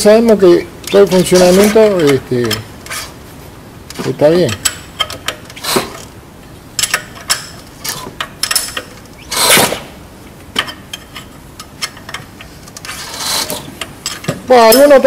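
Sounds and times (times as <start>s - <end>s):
metallic clicks of hand tools: 6.8s - 9.6s.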